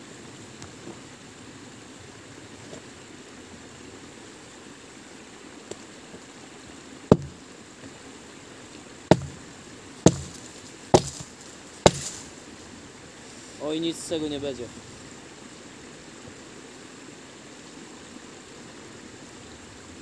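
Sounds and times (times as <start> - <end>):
sharp blows on wood: 7.1 - 7.4, 9.1 - 12.3.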